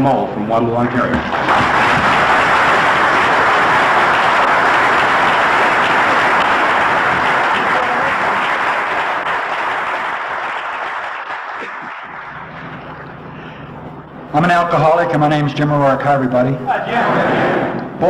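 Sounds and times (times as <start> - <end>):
audience applauding: 0.8 - 13.8.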